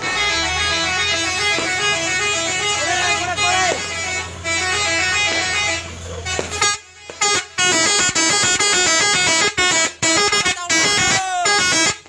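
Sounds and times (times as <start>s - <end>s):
low engine hum: 0.0s - 10.9s
truck horns playing tunes: 0.0s - 12.0s.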